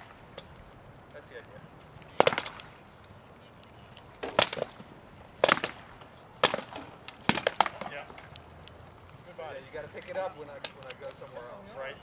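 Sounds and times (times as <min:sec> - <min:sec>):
wooden swords clacking on shields: 0:02.2 - 0:02.7, 0:04.2 - 0:04.8, 0:05.4 - 0:08.3.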